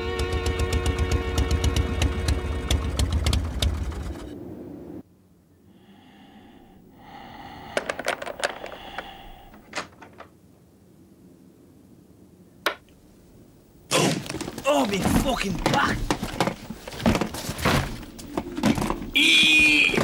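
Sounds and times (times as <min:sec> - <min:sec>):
background music: 0:00.0 - 0:03.0.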